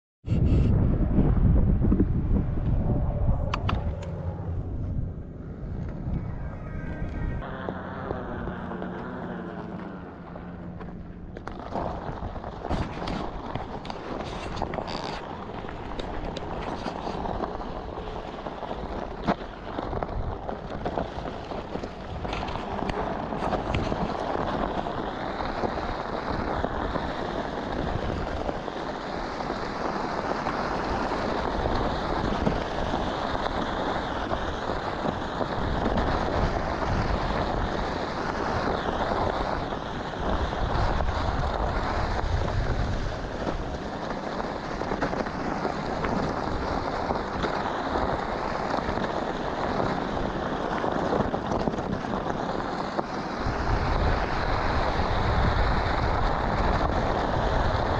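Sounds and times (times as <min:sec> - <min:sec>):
wind buffeting microphone: 0:00.2 - 0:57.9
tyre crunching on gravel: 0:07.2 - 0:54.0.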